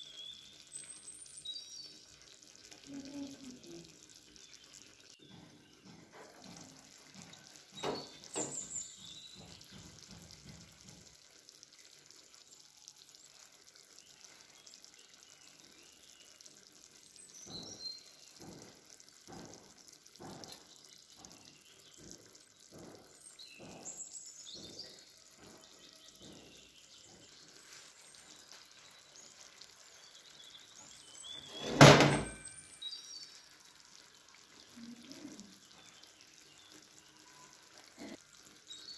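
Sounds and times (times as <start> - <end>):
loud thunk: 31.6 - 32.4.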